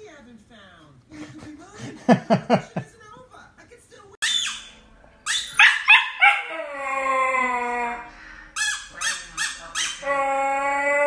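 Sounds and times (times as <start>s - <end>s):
puppy yelping: 4.2s - 8.0s
puppy howling: 5.3s - 8.1s, 9.8s - 11.0s.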